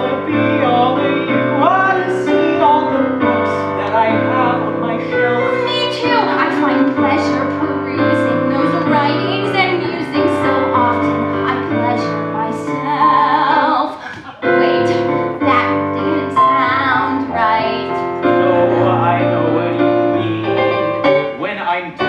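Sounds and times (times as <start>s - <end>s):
piano chords: 0.0s - 22.0s
woman singing a ballad: 5.4s - 18.1s.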